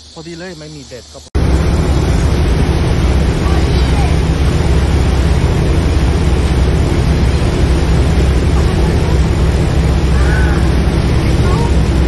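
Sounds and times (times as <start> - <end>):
boat engine rumbling: 0.0 - 12.0
rush of boat wake: 1.0 - 12.0
wind on microphone: 1.4 - 12.0
gull crying: 10.0 - 11.8.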